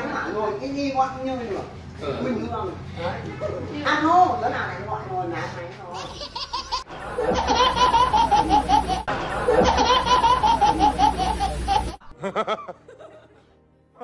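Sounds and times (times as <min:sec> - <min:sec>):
baby laughing: 0:06.0 - 0:12.1.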